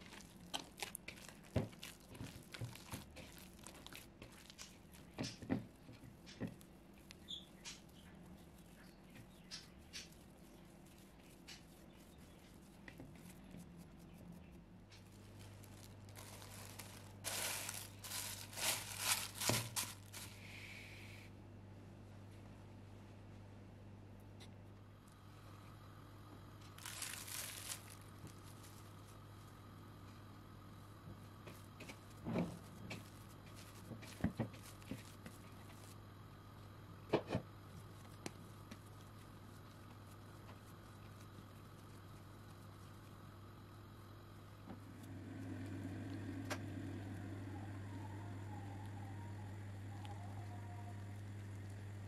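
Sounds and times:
plastic bag crinkling: 0.0s - 9.0s, 14.9s - 20.4s, 26.6s - 29.5s, 31.4s - 36.0s.

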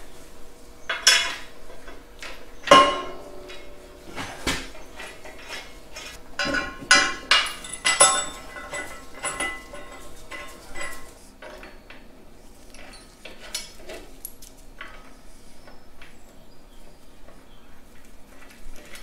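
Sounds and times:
metal bolts and washers clinking: 0.9s - 12.0s.

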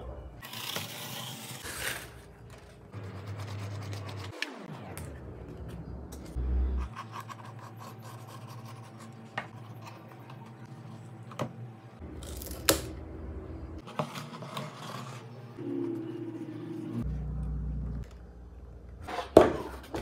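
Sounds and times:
steady low hum: 2.1s - 13.8s, 15.3s - 19.0s.

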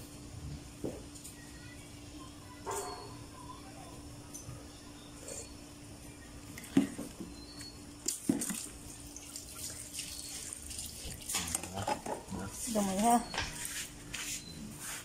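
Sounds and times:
soup sloshing and scraping: 8.0s - 12.7s.

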